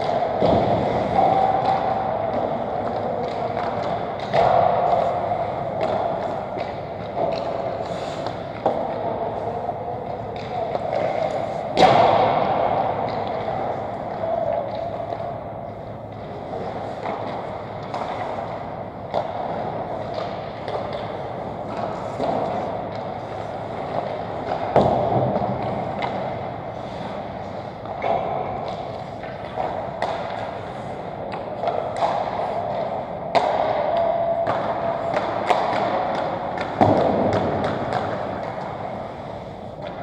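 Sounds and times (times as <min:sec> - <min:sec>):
skates scraping on ice: 0:00.0 - 0:15.0
pucks and sticks clacking: 0:00.0 - 0:40.0.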